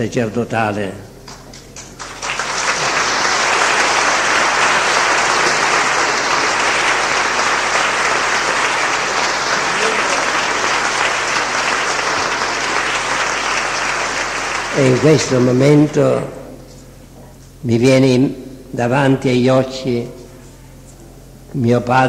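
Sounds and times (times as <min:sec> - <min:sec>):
congregation applauding: 0:01.2 - 0:16.3.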